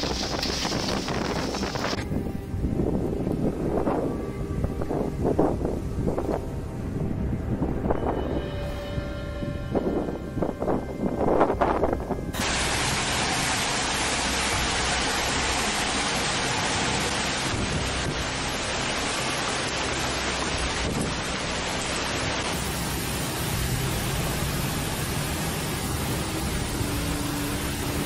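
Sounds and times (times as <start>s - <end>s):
hail and heavy rain: 0.0s - 2.0s, 12.4s - 28.0s.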